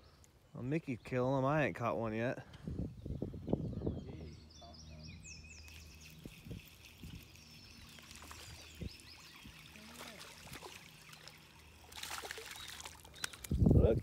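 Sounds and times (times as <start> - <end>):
faint birds chirping: 0.0 - 13.9
low steady hum: 2.8 - 13.8
fish splashing in water: 5.7 - 13.5.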